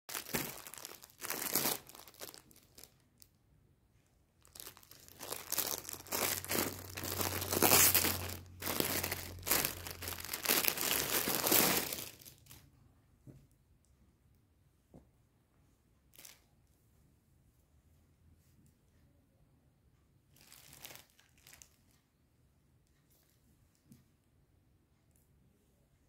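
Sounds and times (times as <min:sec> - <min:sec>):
plastic bag crinkling: 0:00.1 - 0:03.3, 0:04.4 - 0:12.6, 0:20.4 - 0:21.8.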